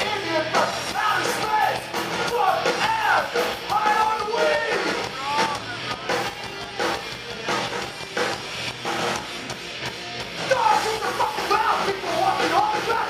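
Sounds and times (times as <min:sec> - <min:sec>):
shouted vocals: 0:00.0 - 0:06.6, 0:10.4 - 0:13.0
distorted electric guitars: 0:00.0 - 0:13.0
drum kit: 0:00.0 - 0:13.0.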